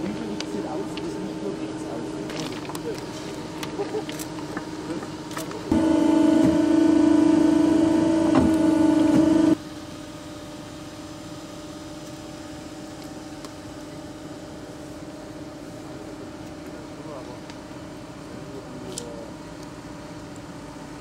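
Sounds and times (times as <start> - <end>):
construction machinery engine whine: 0.0 - 21.0.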